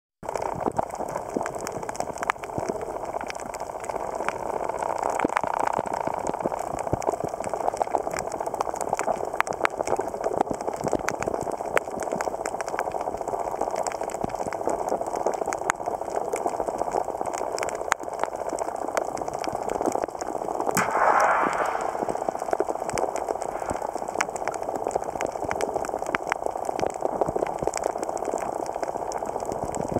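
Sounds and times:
underwater rushing swell: 20.8 - 24.6
muffled underwater hiss: 20.8 - 29.8.

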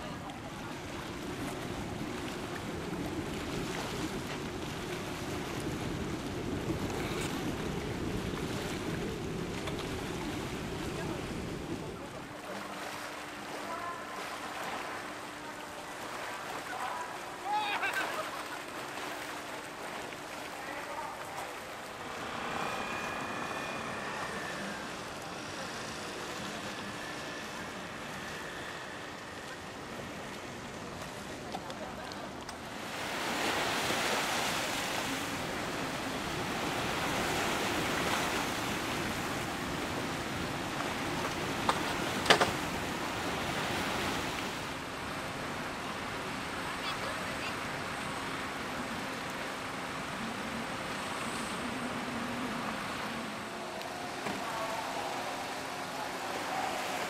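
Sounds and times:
sea rumbling: 0.0 - 57.0
wind buffeting microphone: 0.8 - 12.1.

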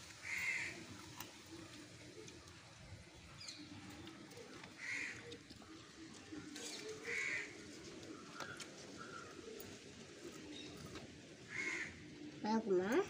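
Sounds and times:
crow cawing: 0.2 - 0.8, 4.8 - 5.3, 7.0 - 7.6, 11.5 - 12.0.

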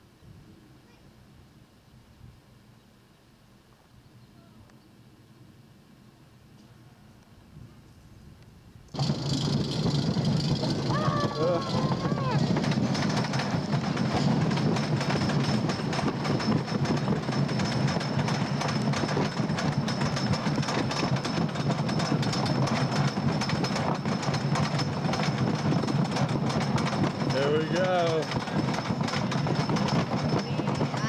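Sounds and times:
roller coaster lift chain clacking: 8.9 - 31.0.

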